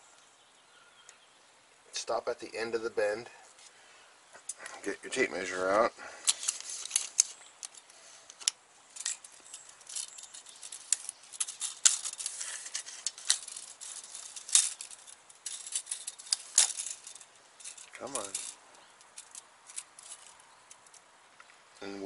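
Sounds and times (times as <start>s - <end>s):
light metallic rattling: 4.4s - 21.1s.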